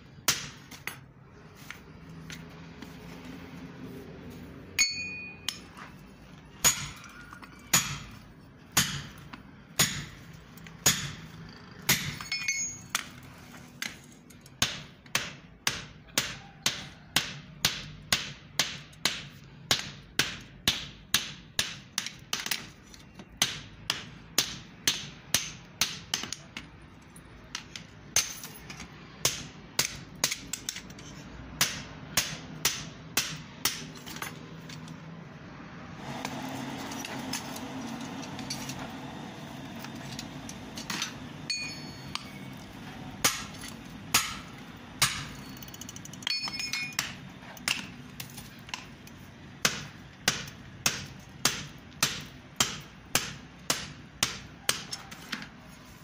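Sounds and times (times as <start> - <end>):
hammer striking steel on anvil: 4.8 - 5.8, 6.6 - 8.2, 8.8 - 10.2, 10.8 - 11.3, 11.9 - 13.1, 28.1 - 34.4, 40.5 - 42.6, 43.2 - 48.0, 49.6 - 55.1.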